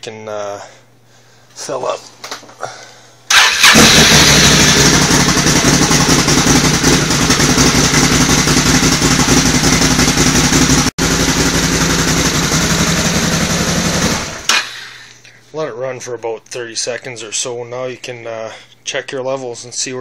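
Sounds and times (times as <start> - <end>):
engine running steadily: 3.3 - 14.7.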